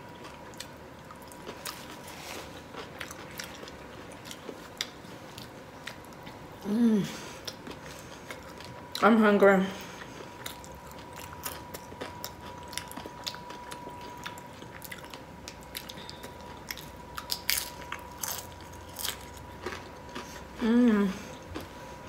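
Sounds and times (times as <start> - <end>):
person crunching chips: 10.1 - 20.6.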